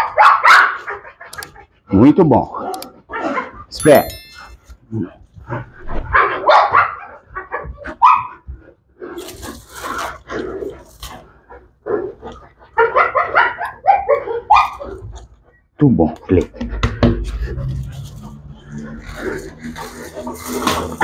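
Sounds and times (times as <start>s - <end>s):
dog barking: 0.0s - 1.6s, 2.6s - 3.6s, 6.1s - 8.4s, 12.7s - 15.1s.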